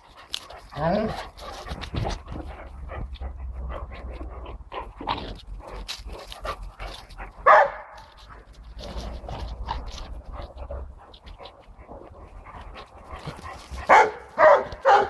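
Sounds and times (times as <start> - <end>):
dogs panting and whining: 0.0 - 15.0
dog barking: 7.4 - 8.1, 13.9 - 15.0.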